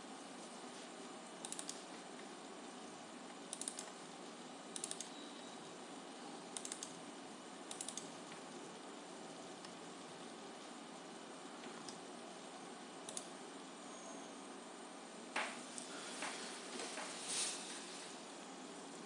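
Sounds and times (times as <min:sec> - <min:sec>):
faint background noise: 0:00.0 - 0:19.0.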